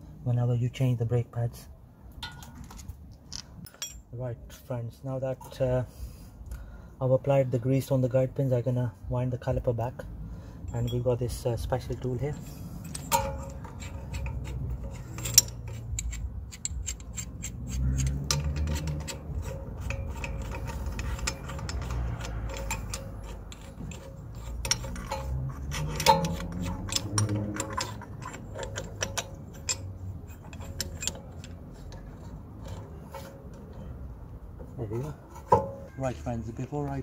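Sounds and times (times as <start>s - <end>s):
hand tools clicking on metal: 12.7s - 33.9s.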